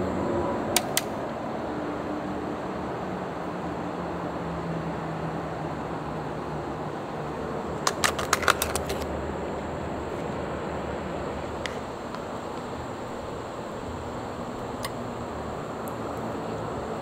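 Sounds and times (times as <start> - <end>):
plastic lids snapping and clicking: 7.8 - 9.1.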